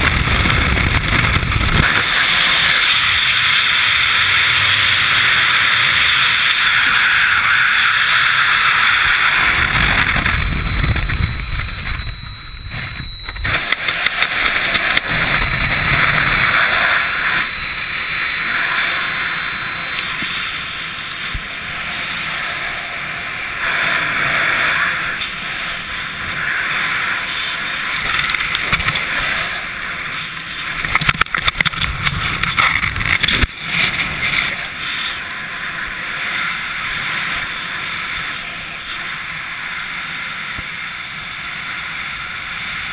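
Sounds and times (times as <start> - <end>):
wind buffeting microphone: 0.0 - 2.7, 8.8 - 27.1
sharp crackles: 0.0 - 41.0.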